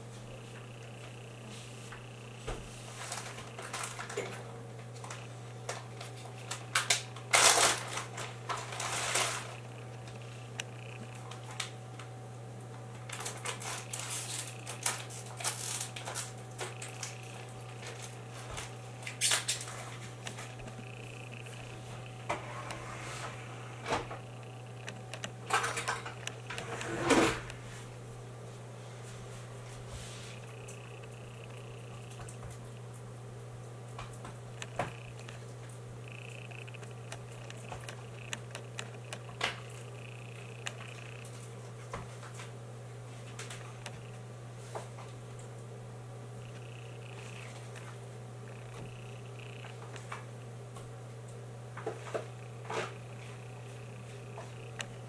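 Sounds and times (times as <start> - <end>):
steady low hum: 0.0 - 55.0
irregular clicks and taps: 24.4 - 26.6, 34.0 - 35.4, 36.1 - 41.3.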